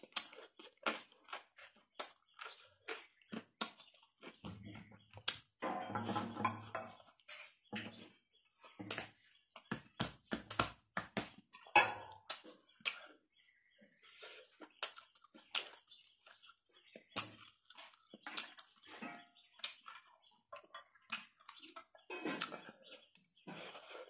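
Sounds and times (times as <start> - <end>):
person chewing with lip smacks: 0.0 - 4.4.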